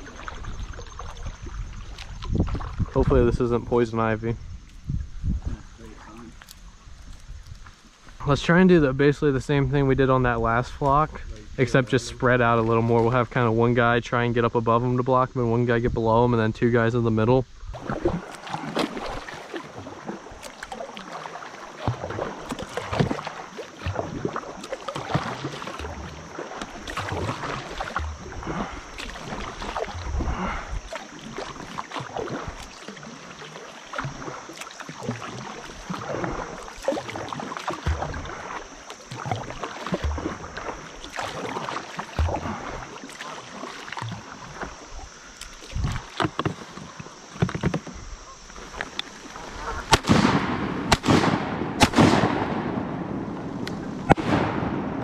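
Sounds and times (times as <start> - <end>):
paddle strokes splashing: 0.0 - 3.4, 17.7 - 55.0
water washing past hull: 0.0 - 6.5, 17.7 - 55.0.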